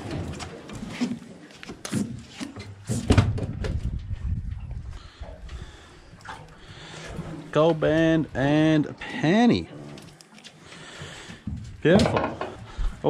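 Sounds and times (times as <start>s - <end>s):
fish handling knocks and rustles: 0.0s - 4.6s, 10.1s - 13.0s.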